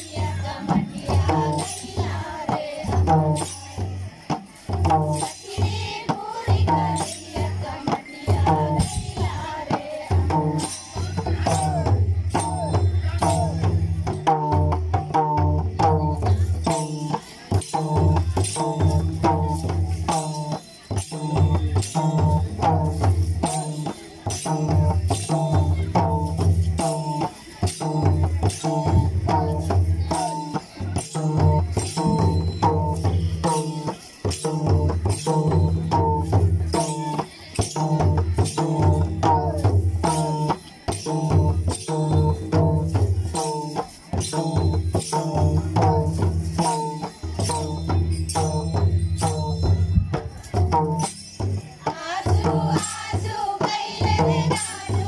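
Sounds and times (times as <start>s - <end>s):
group singing: 0.0s - 3.8s, 5.1s - 12.6s, 51.8s - 55.0s
hand drums beating: 0.0s - 55.0s
metallic jingling: 16.0s - 55.0s.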